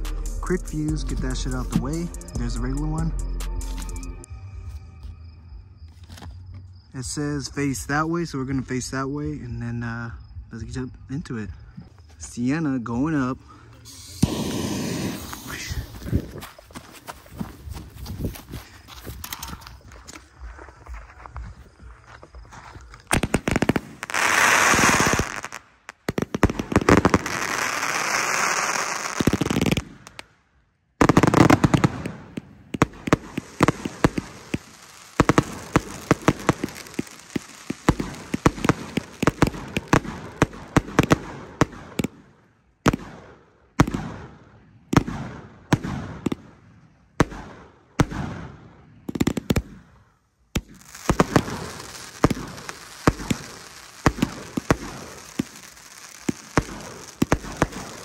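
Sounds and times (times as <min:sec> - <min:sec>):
crackling hiss: 0:13.2 - 0:21.8, 0:22.6 - 0:30.4, 0:31.0 - 0:42.3, 0:49.2 - 0:58.0
firework shots: 0:13.9 - 0:16.4, 0:23.1 - 0:30.3, 0:31.0 - 0:50.0, 0:50.6 - 0:58.0.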